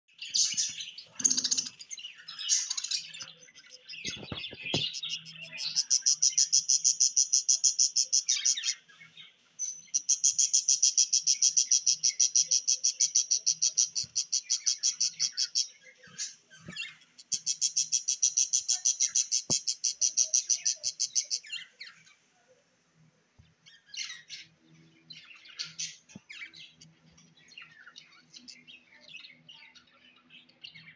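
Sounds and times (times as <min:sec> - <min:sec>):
parrot nestlings begging calls: 0:00.4 - 0:03.1.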